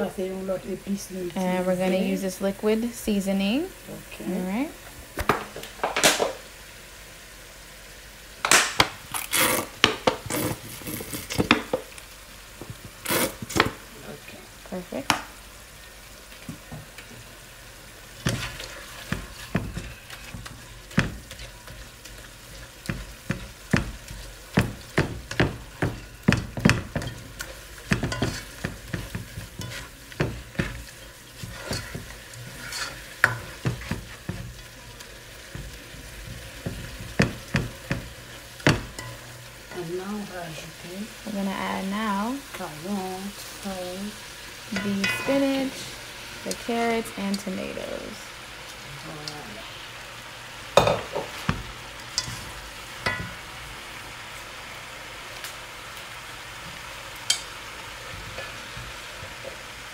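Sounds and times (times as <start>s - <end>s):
food sizzling: 0.0s - 59.9s
spoon scraping metal pot: 27.0s - 34.7s.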